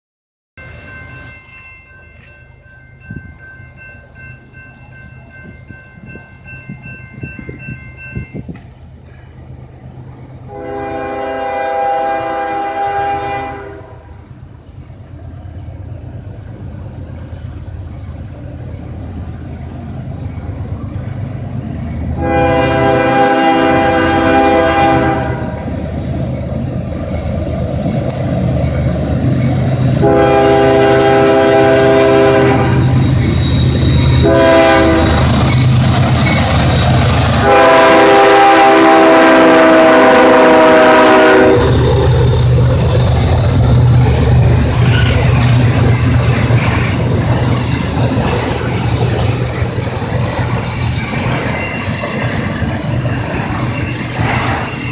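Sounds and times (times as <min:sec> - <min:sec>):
diesel locomotive engine rumble: 0:00.6 - 0:54.9
train air horn blasts: 0:10.4 - 0:14.2, 0:22.2 - 0:25.8, 0:29.9 - 0:33.0, 0:33.6 - 0:35.4, 0:37.3 - 0:41.8.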